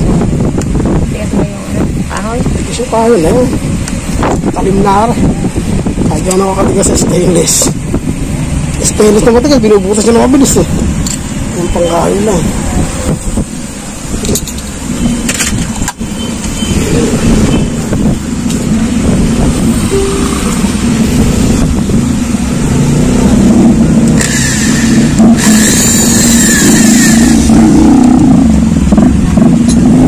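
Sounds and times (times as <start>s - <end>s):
electric drill boring into wood: 24.2s - 26.4s.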